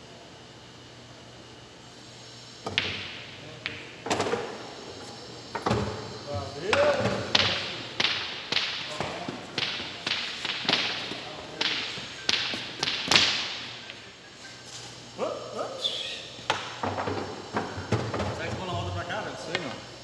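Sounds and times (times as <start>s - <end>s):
pool balls clacking: 2.6s - 6.0s, 6.6s - 14.1s.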